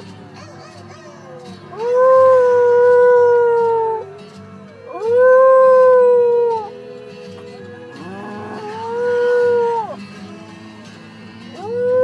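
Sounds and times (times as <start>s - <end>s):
small dog howling: 0.3s - 6.8s, 8.0s - 10.0s, 11.6s - 12.0s.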